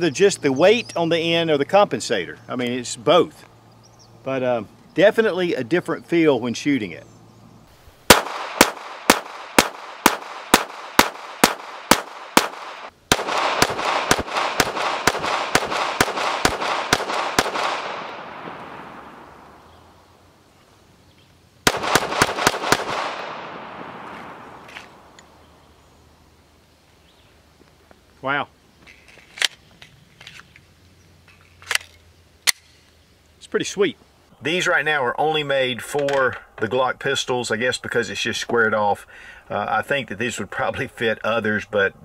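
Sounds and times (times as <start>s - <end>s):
pistol shots: 8.1s - 19.5s, 21.6s - 25.1s.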